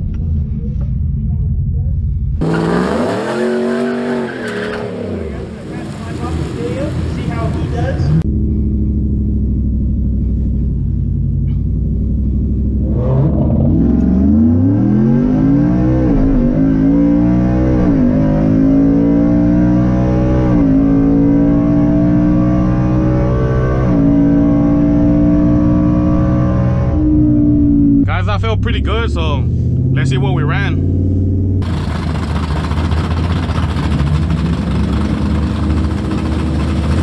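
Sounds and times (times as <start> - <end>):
engine revving through gear shifts: 12.7 - 28.6.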